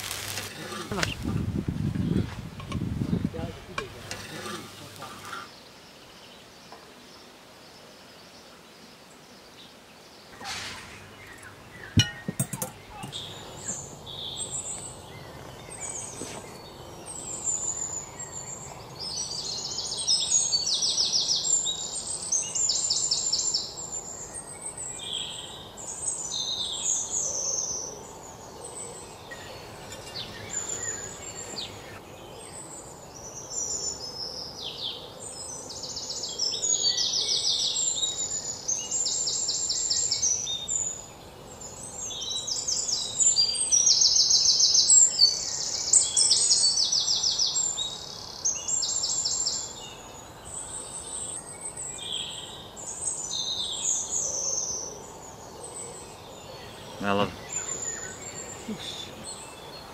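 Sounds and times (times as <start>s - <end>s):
songbirds chirping and trilling: 0.0s - 59.9s
sharp knocks: 11.9s - 13.2s.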